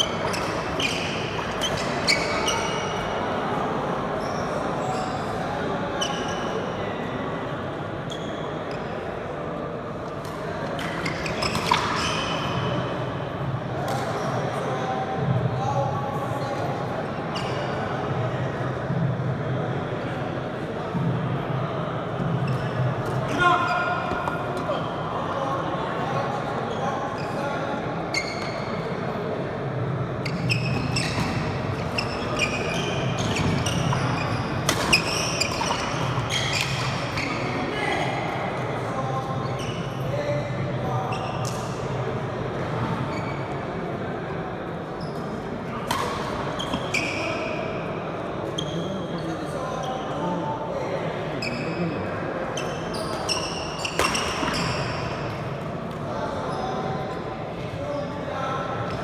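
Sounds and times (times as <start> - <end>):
shoes squeaking on wooden floor: 0.0 - 2.9, 30.2 - 37.5
shoe squeaks on floor: 0.0 - 3.1, 4.2 - 5.4, 6.0 - 6.7, 8.1 - 8.9, 10.8 - 12.8, 17.3 - 17.9, 22.4 - 24.9, 26.7 - 28.8, 30.2 - 37.8, 39.3 - 40.4, 41.0 - 41.8, 43.1 - 43.6, 45.0 - 47.7, 48.4 - 50.2, 51.4 - 52.0, 52.6 - 55.3, 56.2 - 57.1
background murmur of hall: 0.0 - 59.0
racket hitting shuttlecock: 34.6 - 36.9.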